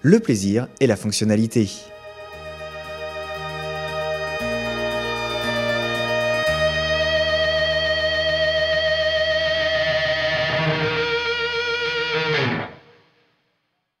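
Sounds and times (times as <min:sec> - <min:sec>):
guitar chord: 0:01.8 - 0:13.0.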